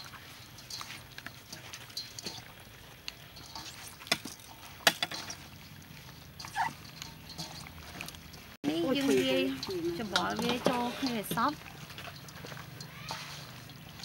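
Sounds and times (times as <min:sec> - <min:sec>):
wet squishing of raw chicken: 0:00.0 - 0:14.0.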